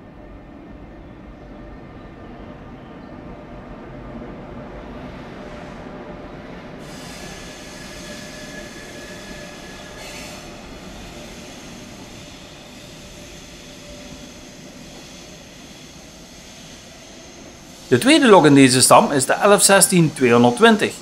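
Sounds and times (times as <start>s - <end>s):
train rolling past: 0.0s - 21.0s
faint high whine: 8.2s - 21.0s.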